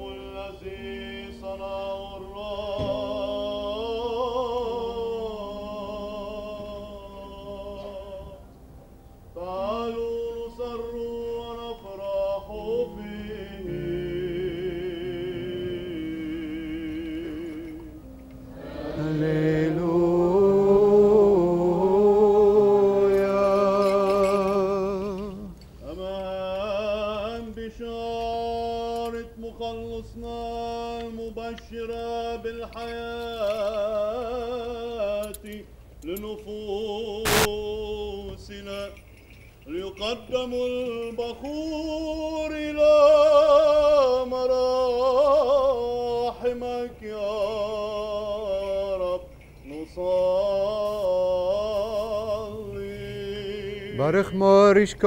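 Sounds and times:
ornamented chant with vibrato: 0.0s - 8.5s, 9.4s - 39.0s, 39.6s - 55.0s
sharp click: 37.3s - 37.6s.

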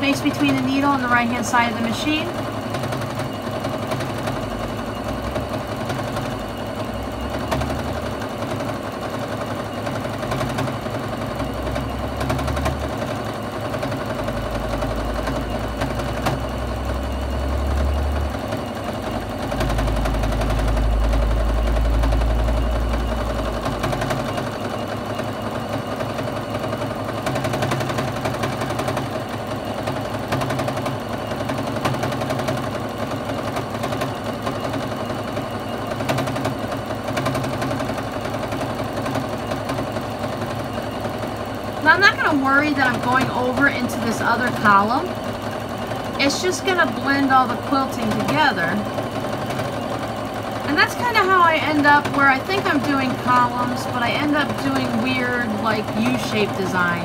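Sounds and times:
sewing machine stitching: 0.0s - 57.0s.

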